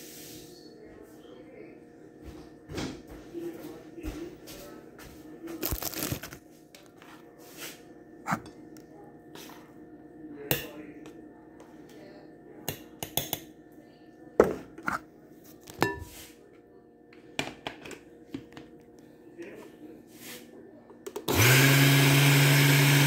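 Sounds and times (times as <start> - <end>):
kitchen containers knocking and clicking: 17.3 - 18.7.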